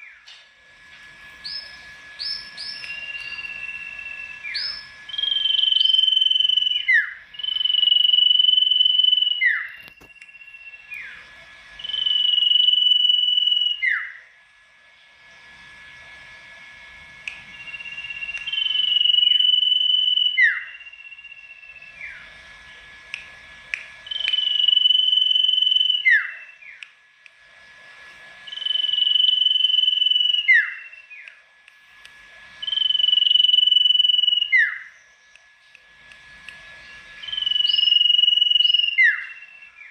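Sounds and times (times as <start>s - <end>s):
songbird whistling: 1.4s - 11.2s, 11.8s - 14.2s, 17.3s - 22.3s, 24.0s - 26.9s, 28.4s - 31.4s, 32.6s - 35.4s, 36.8s - 39.9s.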